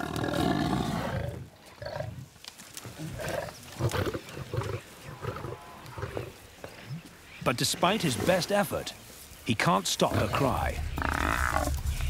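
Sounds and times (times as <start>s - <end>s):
lions growling: 0.0s - 2.2s, 10.1s - 12.0s.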